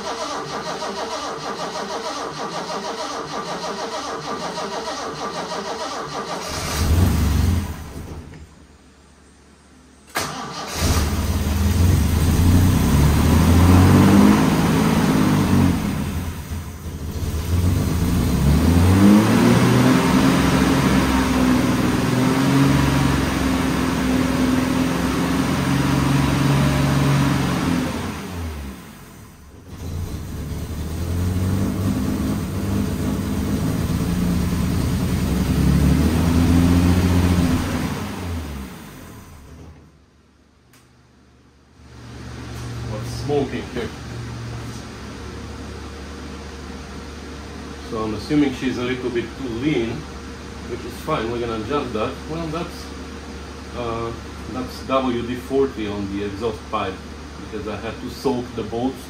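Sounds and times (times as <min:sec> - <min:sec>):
car engine running unevenly: 0:10.6 - 0:39.9.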